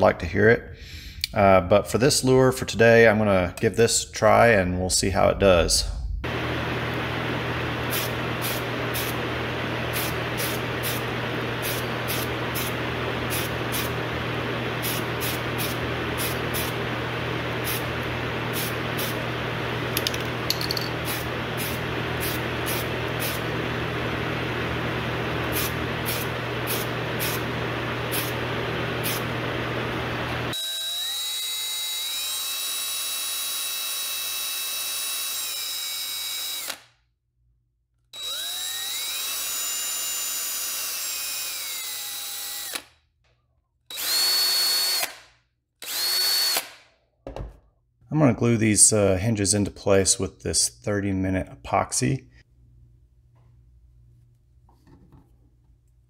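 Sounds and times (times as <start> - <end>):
low fan hum: 4.4 - 30.6
power drill whining: 29.0 - 36.9, 38.1 - 42.9, 43.9 - 45.2, 45.8 - 46.8.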